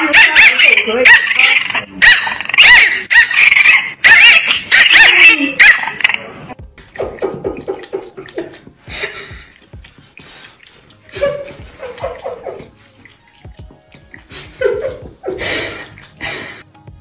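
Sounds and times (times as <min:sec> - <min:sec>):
water running into sink: 0:06.6 - 0:16.3.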